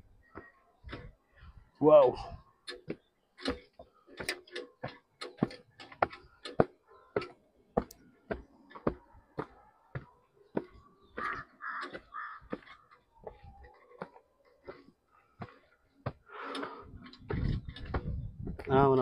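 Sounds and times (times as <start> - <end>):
footsteps on stone steps: 2.7 - 19.0
crow cawing: 11.2 - 12.8.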